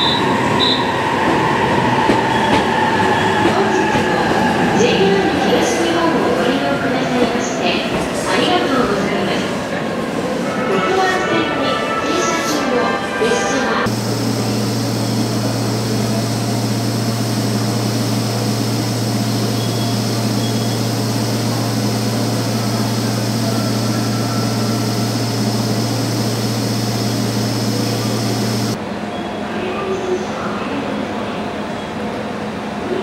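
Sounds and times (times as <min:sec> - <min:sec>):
electric train humming: 0:13.8 - 0:28.8.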